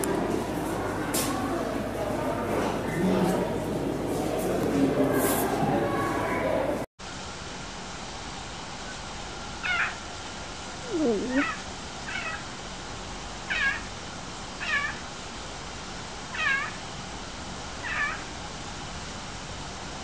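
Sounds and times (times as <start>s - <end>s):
leopard mewing: 10.8s - 12.5s.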